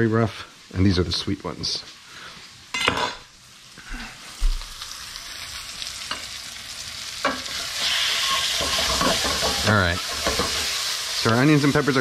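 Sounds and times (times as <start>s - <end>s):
vegetables sizzling in a skillet: 0.0s - 12.0s
wooden spoon scraping a pan: 7.3s - 11.0s
spoon knocking on a pan: 8.6s - 10.6s.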